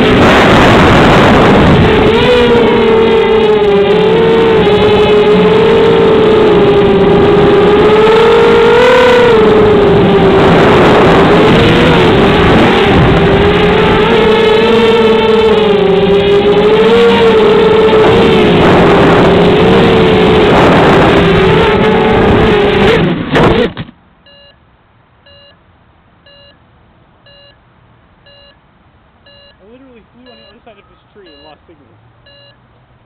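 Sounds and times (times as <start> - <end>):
quadcopter motors whining: 0.8 - 23.6
faint repeating beep: 24.2 - 24.6, 25.2 - 25.6, 26.2 - 26.6, 27.2 - 27.6, 28.2 - 28.6, 29.2 - 32.6.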